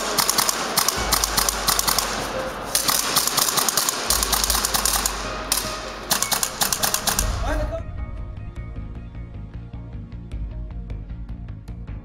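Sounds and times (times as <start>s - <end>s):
airsoft guns firing bursts: 0.0s - 7.5s.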